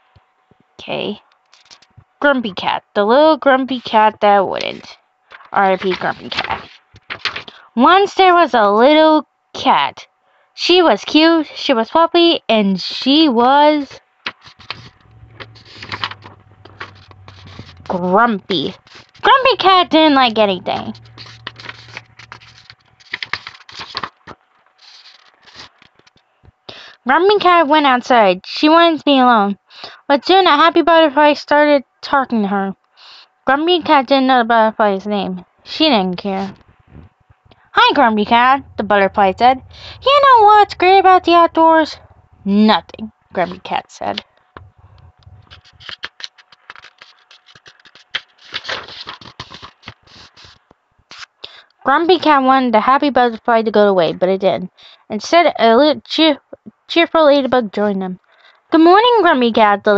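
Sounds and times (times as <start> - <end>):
book pages turning: 5.3 - 7.6, 14.2 - 26.2, 44.6 - 51.3.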